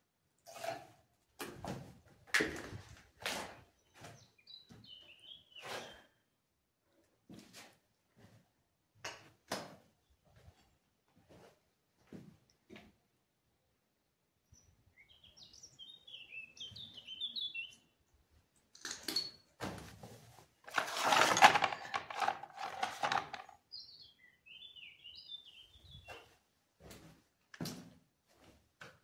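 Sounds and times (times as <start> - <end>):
small birds chirping: 3.7 - 6.2, 14.5 - 18.0, 23.3 - 26.4
paper rustling: 20.6 - 23.5.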